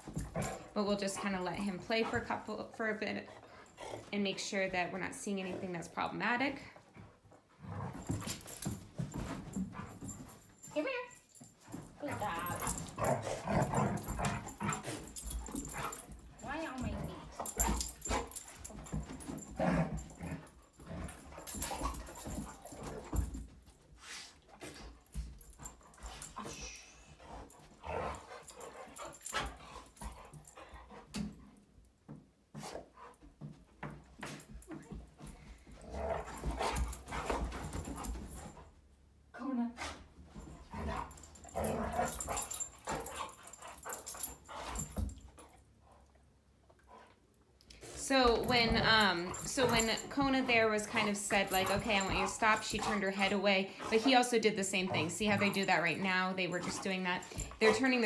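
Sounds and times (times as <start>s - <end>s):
dogs play growling and yipping: 0.0s - 4.7s, 6.6s - 58.0s
scuffling and thumps of paws: 6.9s - 10.7s, 11.4s - 31.4s, 32.1s - 38.7s, 40.2s - 45.5s, 47.8s - 58.0s.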